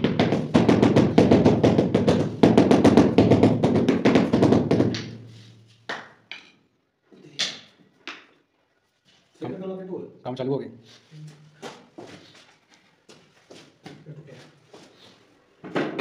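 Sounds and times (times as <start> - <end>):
mallet tapping floor tile: 0.0 - 6.6.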